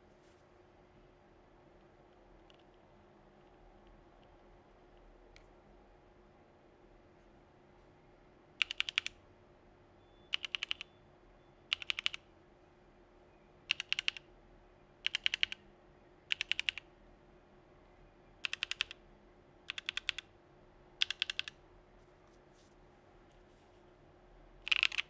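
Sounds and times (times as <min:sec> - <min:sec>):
mechanical keyboard keys clacking: 0:08.6 - 0:09.1, 0:10.3 - 0:10.8, 0:11.7 - 0:12.2, 0:13.7 - 0:14.2, 0:15.0 - 0:15.6, 0:16.3 - 0:16.8, 0:18.4 - 0:19.0, 0:19.7 - 0:20.2, 0:21.0 - 0:21.6, 0:24.6 - 0:25.0.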